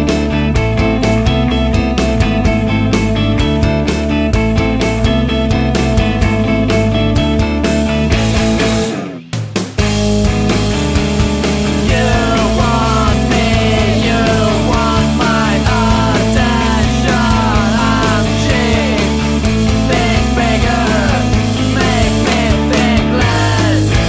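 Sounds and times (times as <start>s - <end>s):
rock band playing: 0.0s - 24.0s
sliding lead guitar line: 0.0s - 24.0s.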